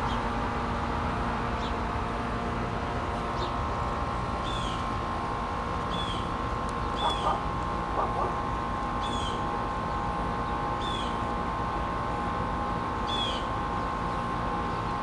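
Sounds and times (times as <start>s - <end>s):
droning hum with held tones: 0.0s - 15.0s
bird chirping: 5.9s - 7.4s.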